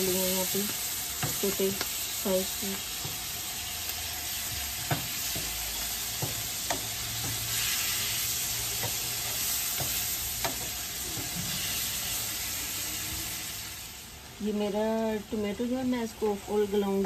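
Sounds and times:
food sizzling in oil: 0.0 - 17.0
spatula tapping pan: 0.6 - 2.0, 4.5 - 7.8, 8.6 - 11.4.

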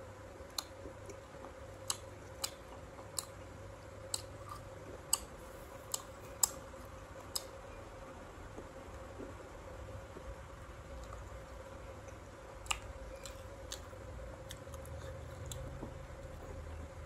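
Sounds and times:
crunching of raw fruit: 12.6 - 16.6.

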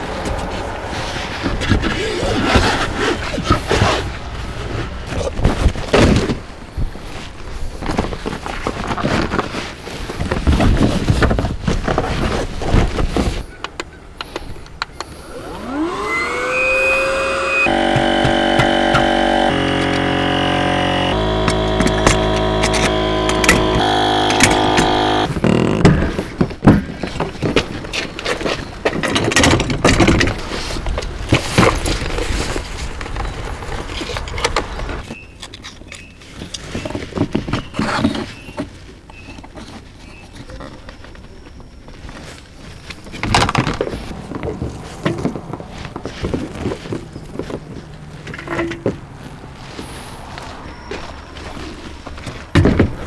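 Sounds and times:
small electric motor whine: 15.1 - 25.3
gear clattering and knocking: 17.6 - 30.5.

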